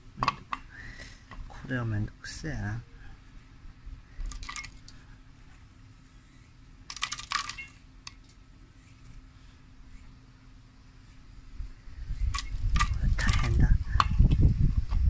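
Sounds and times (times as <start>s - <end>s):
glass clicking on steel: 6.9s - 8.4s.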